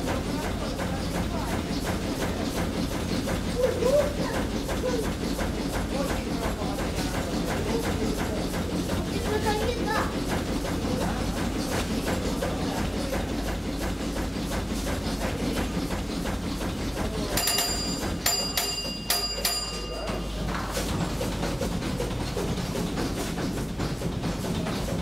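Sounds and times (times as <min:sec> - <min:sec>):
steam engine rhythmic beat: 0:00.0 - 0:25.0
small bell ringing: 0:17.4 - 0:20.3.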